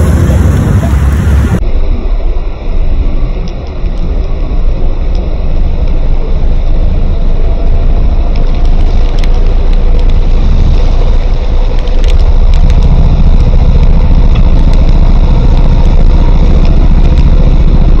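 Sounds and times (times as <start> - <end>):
motorcycle engine running: 0.0 - 1.6, 5.5 - 18.0
wind rumble on microphone: 0.0 - 18.0.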